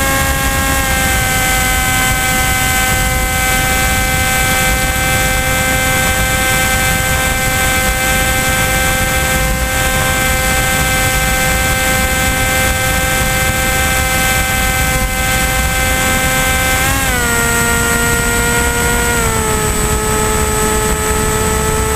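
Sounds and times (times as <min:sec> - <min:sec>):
electric motor and propeller whining: 0:00.0 - 0:21.9
wind rush on microphone: 0:00.0 - 0:21.9.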